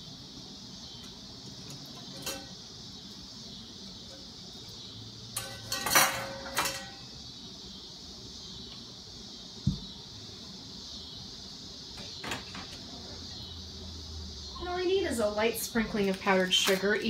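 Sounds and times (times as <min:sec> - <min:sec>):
metal bakeware clinking and clattering: 0:02.0 - 0:02.6, 0:05.3 - 0:07.0
light knock: 0:09.6 - 0:09.9.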